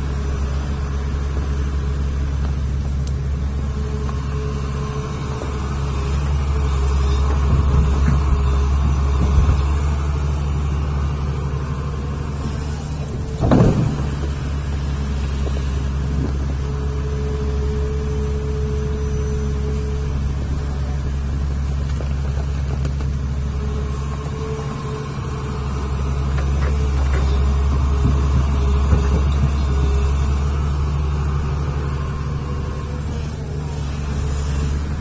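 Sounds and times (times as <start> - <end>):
excavator diesel engine running: 0.0 - 35.0.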